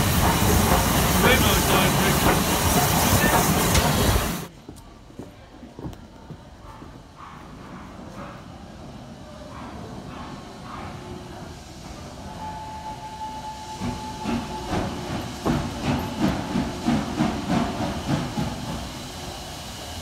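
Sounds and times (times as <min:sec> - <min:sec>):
steam locomotive exhaust chuffs: 0:00.0 - 0:04.5, 0:06.8 - 0:20.0
steam locomotive whistle: 0:12.3 - 0:15.2.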